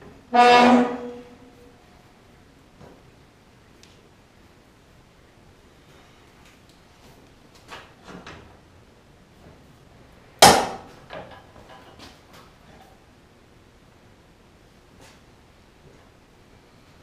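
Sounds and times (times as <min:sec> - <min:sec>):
loud sharp metal clank: 0:10.4 - 0:10.9.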